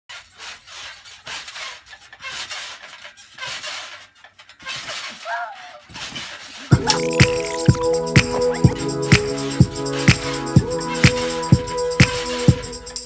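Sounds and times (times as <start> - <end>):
trampoline springs rattling and creaking: 0.1 - 6.8.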